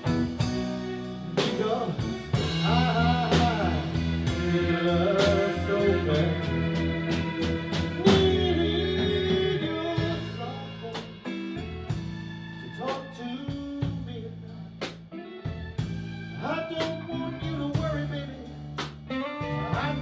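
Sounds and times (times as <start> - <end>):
drum hits: 0.0 - 11.4
lead guitar bent notes: 0.0 - 12.6
blues band playing: 0.0 - 20.0.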